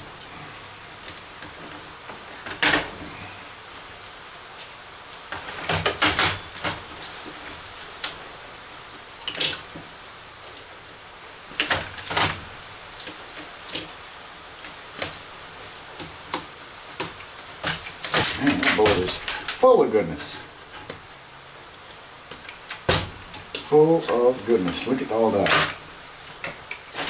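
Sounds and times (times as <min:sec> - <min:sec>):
metal clicks and scrapes: 0:16.0 - 0:19.6.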